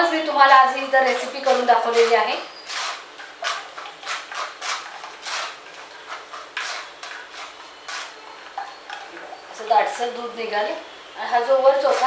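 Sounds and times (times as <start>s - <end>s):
metal spoon scraping mesh strainer: 1.1s - 9.5s.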